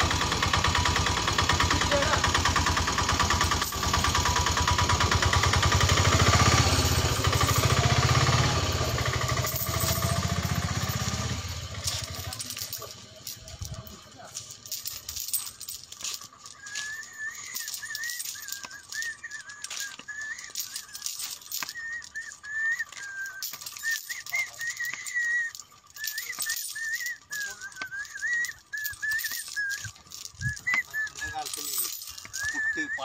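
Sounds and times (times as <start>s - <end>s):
person whistling a tune: 16.4s - 33.0s.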